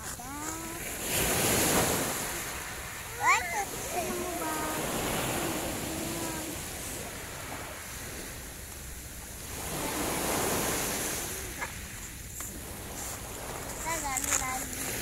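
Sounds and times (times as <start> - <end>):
sea surf washing onto beach: 0.0 - 15.0
wind on microphone: 0.0 - 15.0.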